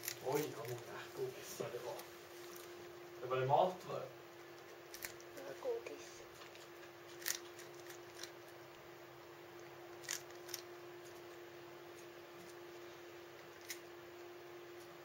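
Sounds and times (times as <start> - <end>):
cat crunching cardboard: 0.0 - 2.8, 4.6 - 5.3, 6.3 - 8.6, 9.9 - 11.2, 13.4 - 13.8
faint steady hum: 0.0 - 15.0.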